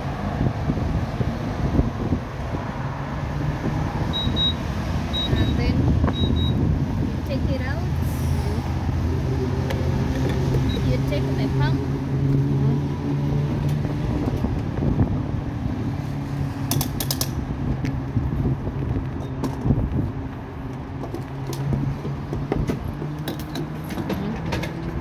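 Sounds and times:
sharp clicks and knocks: 16.6 - 18.0, 20.7 - 25.0.

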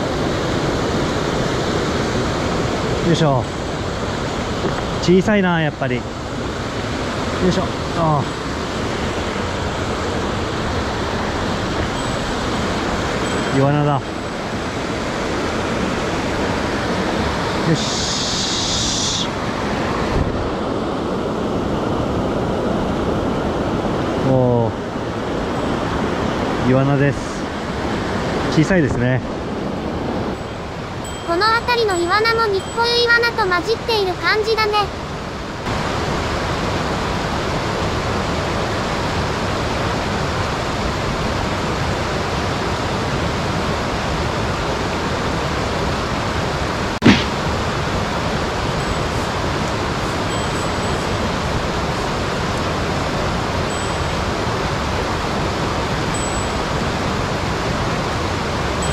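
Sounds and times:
stream rapids rushing over boulders: 0.0 - 32.2, 33.4 - 58.9
high hiss: 17.7 - 19.4.

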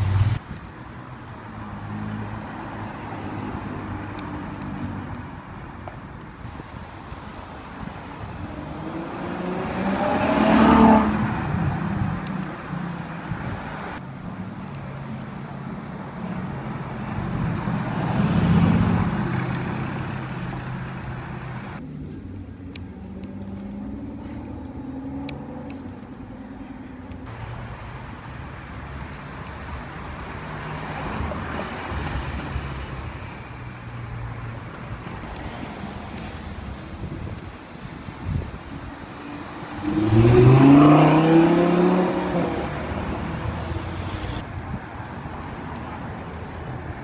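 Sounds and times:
traffic passing: 0.0 - 47.0
car engine passing by: 8.3 - 12.4, 16.4 - 22.3, 23.0 - 26.0, 39.2 - 44.5.

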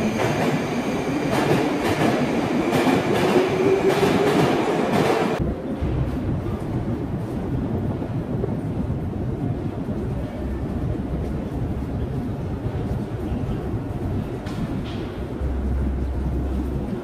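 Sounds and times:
passengers moving through hall: 0.0 - 17.0
low rumble: 5.4 - 17.0.

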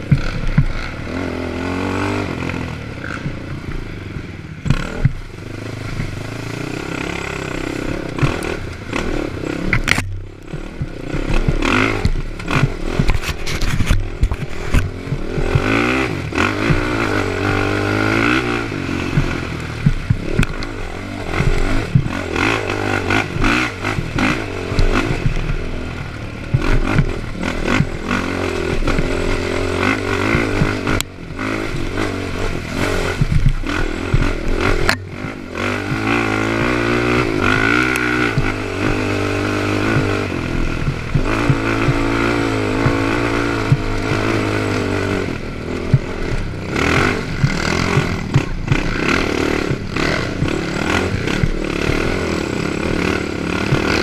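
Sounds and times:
quad engine revving: 0.0 - 54.0
clattering knocks over bumps: 45.5 - 54.0.

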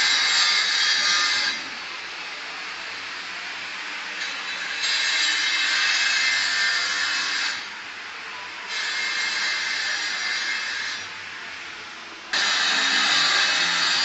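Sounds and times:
power tool hissing: 12.3 - 14.0.

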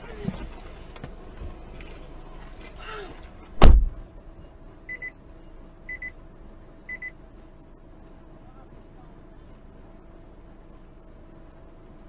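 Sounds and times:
car door slamming: 3.5 - 4.0.

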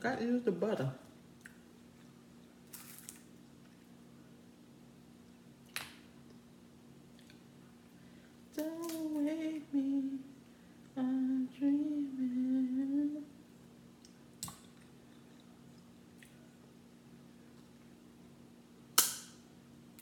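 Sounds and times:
woman humming: 8.6 - 10.4, 11.0 - 13.4.

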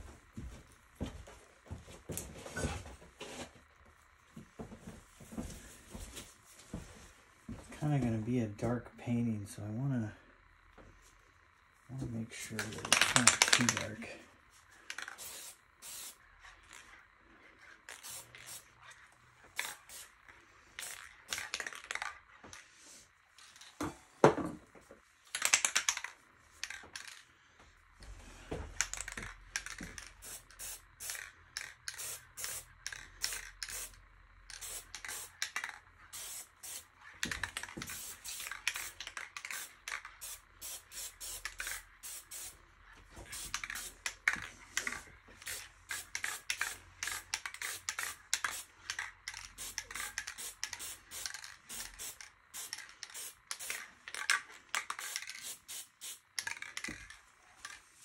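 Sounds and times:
faint low hum: 0.0 - 58.0
aerosol spray paint hissing: 15.1 - 16.2, 18.0 - 18.7, 19.6 - 20.1, 30.2 - 31.2, 31.9 - 35.4, 36.1 - 36.9, 37.8 - 42.6, 43.3 - 44.0, 45.4 - 48.8, 49.5 - 53.8, 55.0 - 56.2.

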